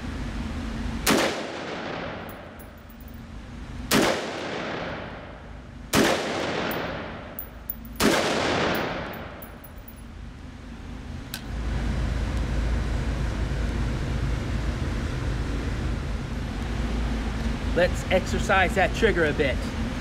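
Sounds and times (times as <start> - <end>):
rifle shots echoing indoors: 1.0 - 2.6, 3.9 - 5.3, 5.9 - 9.4
faint high clinks: 2.3 - 3.2, 7.4 - 8.0, 8.8 - 10.1.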